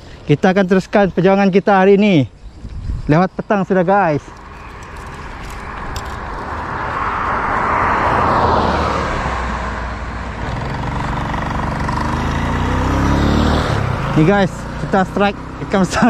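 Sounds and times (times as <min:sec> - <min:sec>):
car passing: 0:03.8 - 0:16.0
small motorcycle engine: 0:10.4 - 0:16.0.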